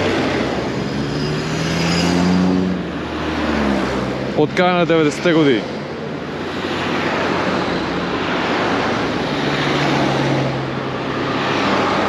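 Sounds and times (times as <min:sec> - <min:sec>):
cars passing: 0:00.0 - 0:12.0.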